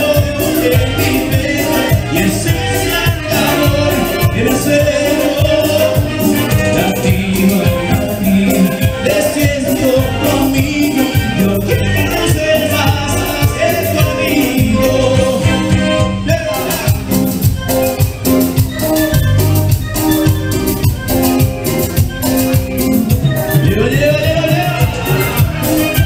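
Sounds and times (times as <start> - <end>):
acoustic guitar: 0.0 - 26.0
bass guitar: 0.0 - 26.0
keyboard: 0.0 - 26.0.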